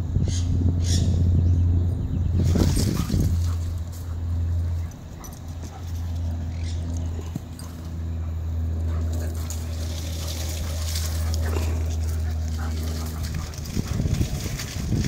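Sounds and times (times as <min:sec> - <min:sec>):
dog growling low: 0:10.6 - 0:14.1.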